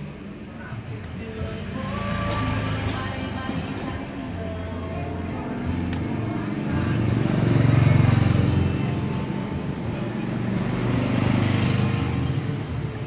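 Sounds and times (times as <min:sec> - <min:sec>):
vehicle engine passing by: 0:01.7 - 0:04.0, 0:05.6 - 0:13.0.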